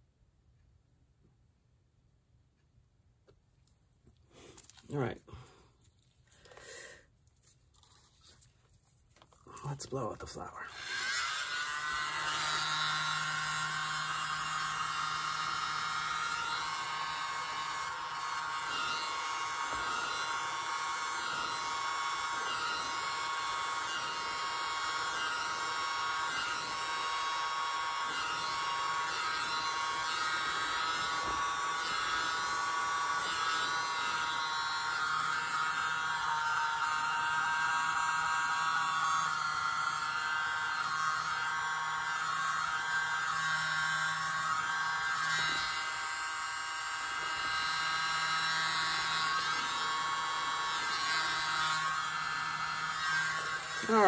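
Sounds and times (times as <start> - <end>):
hair dryer running: 10.6 - 54.0.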